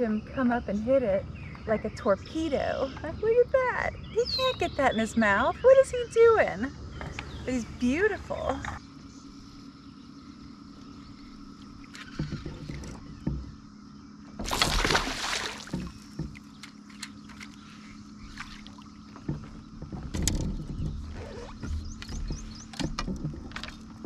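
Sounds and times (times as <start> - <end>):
light knocks: 11.9 - 13.6, 15.6 - 17.5
fish splashing in water: 14.4 - 16.6.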